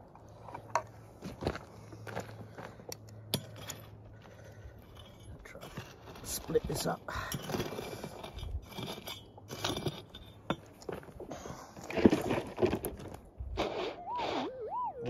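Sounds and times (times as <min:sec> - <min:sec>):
pick striking stony gravel: 0:05.0 - 0:13.8.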